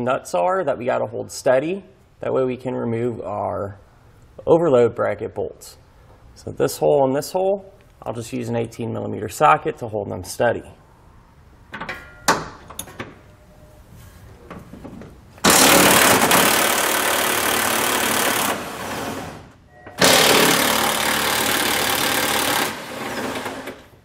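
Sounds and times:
power wrench running: 15.4 - 19.4, 20.0 - 24.0.

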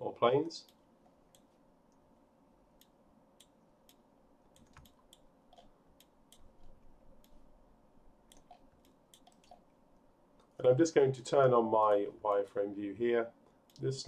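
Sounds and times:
faint steady hum: 0.0 - 14.0
computer mouse and keyboard clicks: 2.8 - 7.4, 8.3 - 9.7, 13.7 - 14.0.

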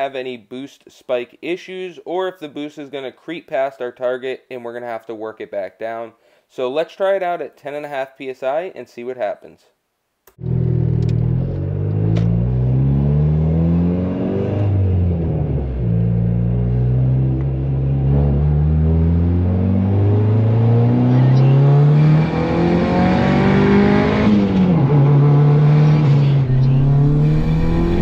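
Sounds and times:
car engine accelerating: 10.4 - 28.0.

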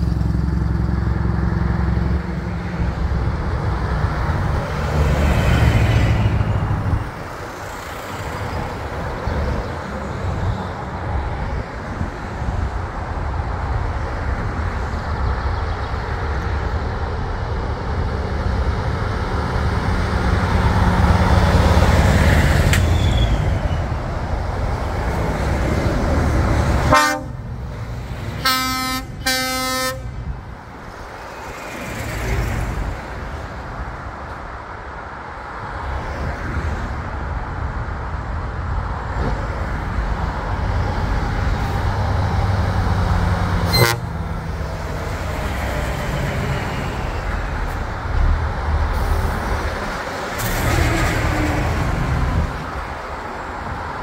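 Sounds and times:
truck engines rumbling past: 0.0 - 54.0
truck horn blasts: 26.8 - 27.5, 28.4 - 30.1, 43.6 - 44.2.

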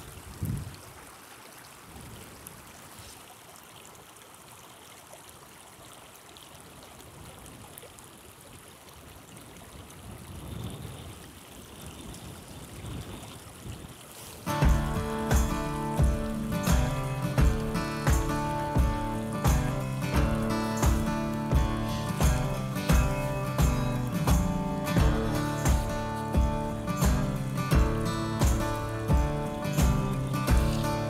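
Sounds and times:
wind rumble on microphone: 0.0 - 0.9, 1.9 - 2.7, 9.3 - 15.2
river water rushing over rocks: 12.6 - 31.0.

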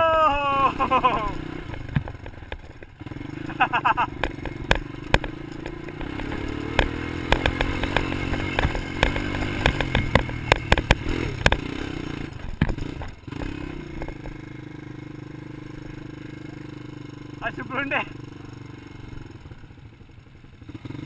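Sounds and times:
quad bike engine running: 0.0 - 21.0
knocks and clatter over bumps: 1.0 - 17.4.

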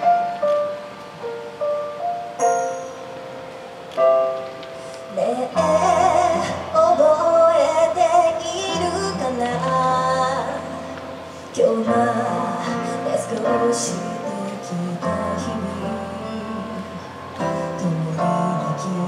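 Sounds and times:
backing track with piano and bass: 0.0 - 19.0
woman singing into a microphone: 4.9 - 19.0.

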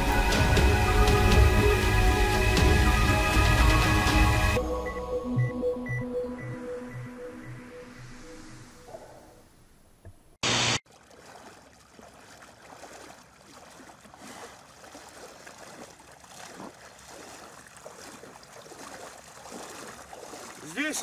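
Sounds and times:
wading through shallow water: 10.8 - 21.0.

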